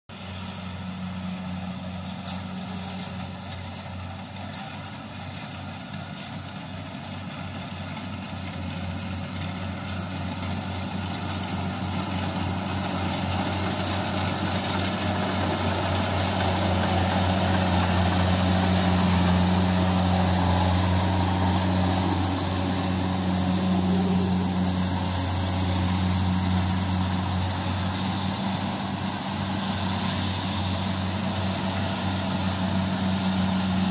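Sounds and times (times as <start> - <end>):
combine harvester diesel engine: 0.1 - 33.9.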